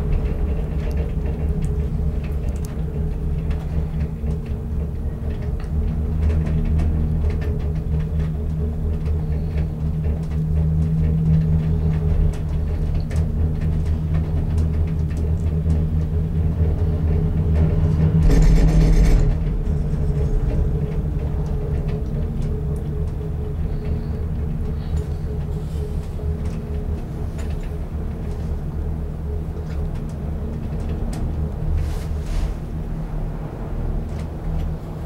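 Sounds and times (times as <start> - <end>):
cabin ticks and creaks: 0.0 - 33.0, 33.6 - 35.0
gondola cabin rumble and hum: 0.0 - 35.0
rush of rattling noise: 16.9 - 22.8.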